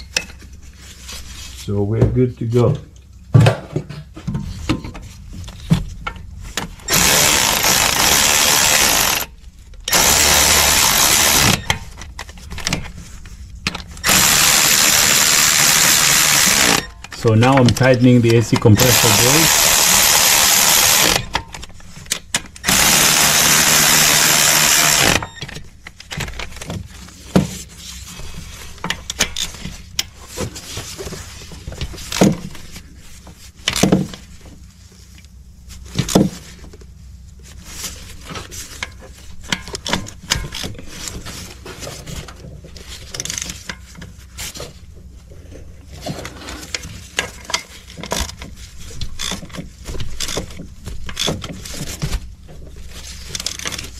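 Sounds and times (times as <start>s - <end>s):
power tool running: 6.9s - 9.3s, 9.9s - 11.7s, 14.0s - 16.9s, 18.8s - 21.3s, 22.6s - 25.3s.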